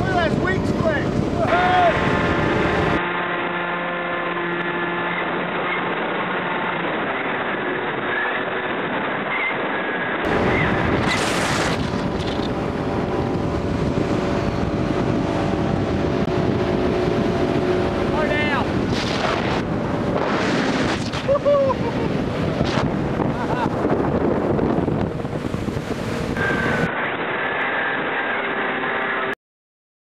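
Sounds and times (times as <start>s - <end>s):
wind buffeting microphone: 0.0s - 3.0s, 10.2s - 26.9s
boat engine running: 0.0s - 29.2s
electric motor and propeller whining: 0.0s - 29.4s.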